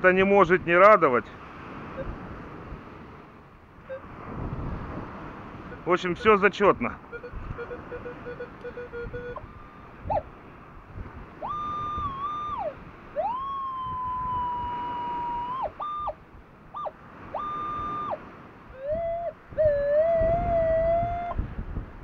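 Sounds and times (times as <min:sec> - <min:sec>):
metal detector gliding tones: 0:05.7 - 0:10.2, 0:11.4 - 0:18.2.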